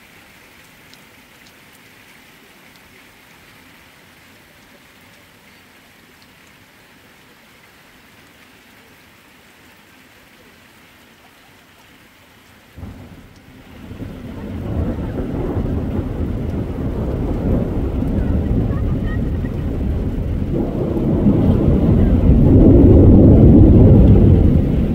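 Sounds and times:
light rain hiss: 0.0 - 24.9
thunder clap and rumble: 12.8 - 24.9.

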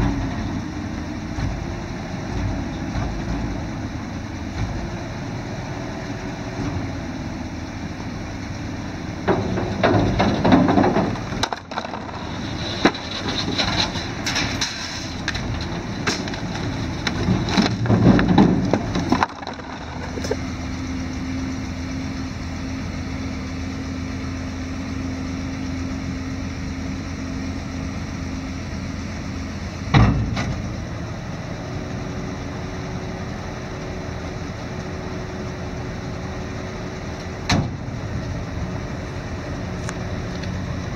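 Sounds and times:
truck engine running: 0.0 - 40.9
dump box thump: 29.9 - 30.6.

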